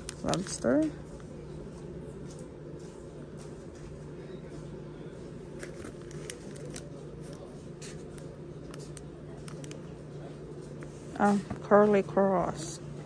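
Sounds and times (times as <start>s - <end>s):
plastic bags crinkling: 0.0s - 0.9s, 5.6s - 7.5s
steady low hum: 0.0s - 13.0s.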